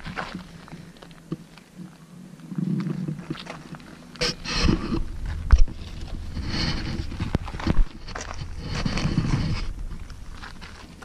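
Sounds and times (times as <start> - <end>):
footsteps on gravel: 0.0 - 1.9, 2.6 - 11.0
wind rumble on microphone: 2.2 - 11.0.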